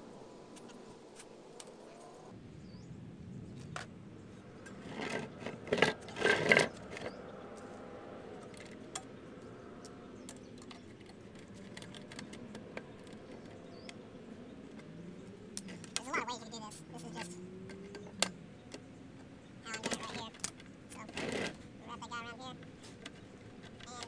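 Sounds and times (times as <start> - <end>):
rustling and scraping handling noise: 4.6 - 7.8, 10.6 - 13.6, 19.7 - 24.0.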